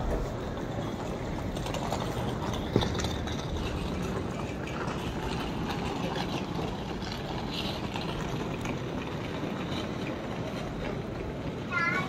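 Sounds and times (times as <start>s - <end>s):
low rumble of station hubbub: 0.0s - 12.0s
rolling suitcase wheels: 0.0s - 12.0s.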